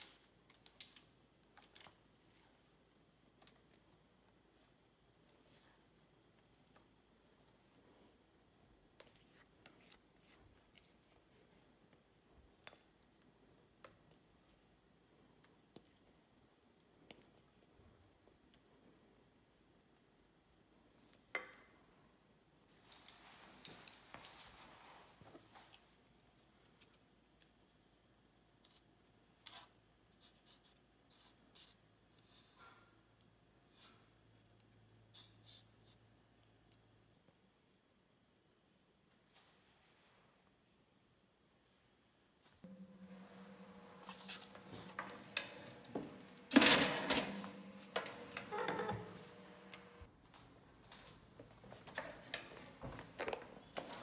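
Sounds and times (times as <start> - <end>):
steady low hum: 42.6 - 50.1.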